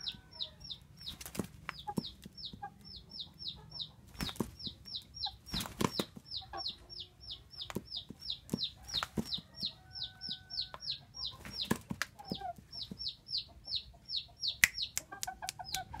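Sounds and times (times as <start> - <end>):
chickens clucking: 0.0 - 16.0
high falling peeps: 9.6 - 16.0.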